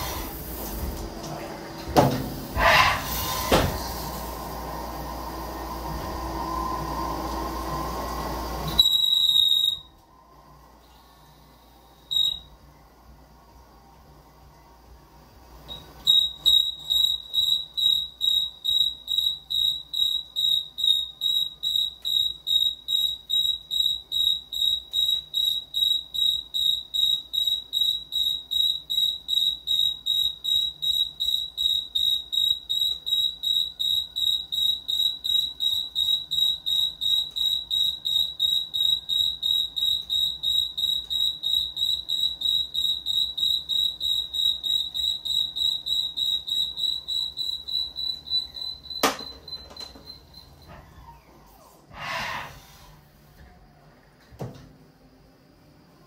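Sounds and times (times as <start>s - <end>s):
high electronic alarm beeps: 8.8s - 10.0s, 12.1s - 12.5s, 15.7s - 50.8s.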